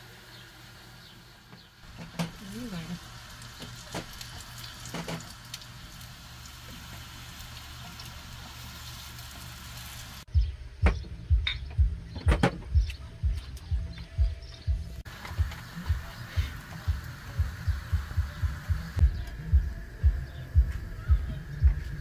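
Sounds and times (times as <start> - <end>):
pastries sizzling in oil: 0.0 - 10.3, 15.0 - 19.0
music with thumping beat: 10.3 - 22.0.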